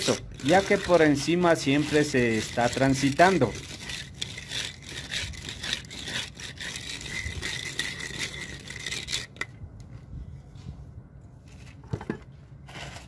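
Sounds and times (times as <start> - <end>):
hand float scraping concrete: 0.0 - 9.5, 12.6 - 13.0.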